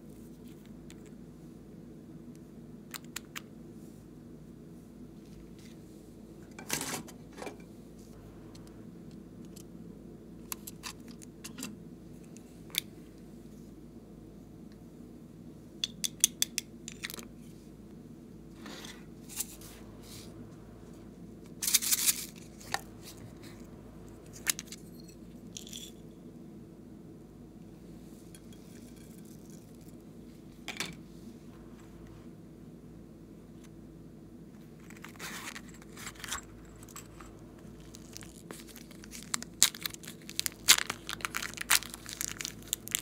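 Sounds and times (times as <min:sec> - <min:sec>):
low steady hum: 0:00.0 - 0:43.0.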